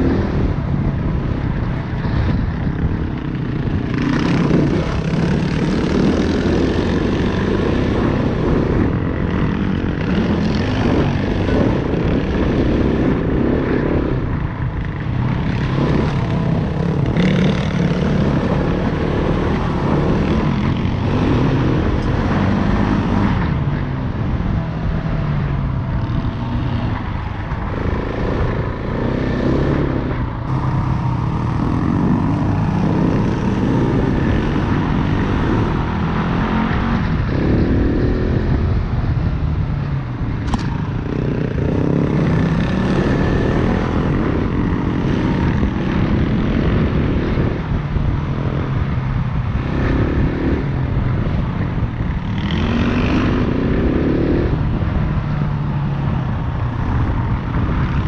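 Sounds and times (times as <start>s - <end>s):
wind and riding noise: 0.0s - 58.0s
dirt bike engine revving: 2.2s - 23.6s, 27.6s - 38.6s, 40.5s - 47.7s, 49.4s - 55.1s.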